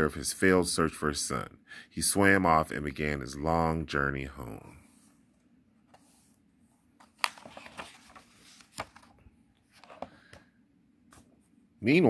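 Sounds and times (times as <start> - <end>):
paper pages rustling: 5.8 - 10.4.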